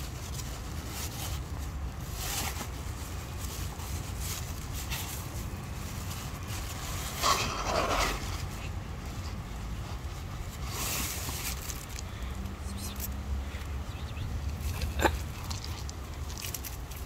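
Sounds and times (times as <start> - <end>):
cats crunching dry kibble: 0.0 - 17.0
steady low rumble: 2.7 - 17.0.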